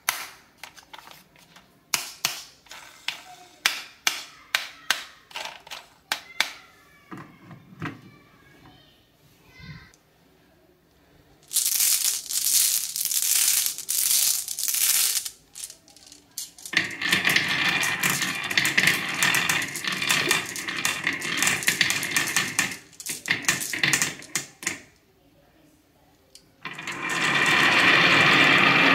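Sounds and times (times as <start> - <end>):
marbles rolling down wooden track: 11.4 - 24.9, 26.6 - 28.9.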